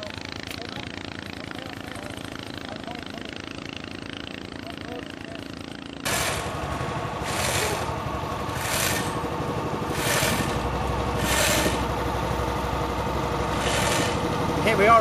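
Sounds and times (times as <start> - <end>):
small boat engine running: 0.0 - 15.0
pulsing loud hiss: 7.2 - 7.9, 13.5 - 14.3.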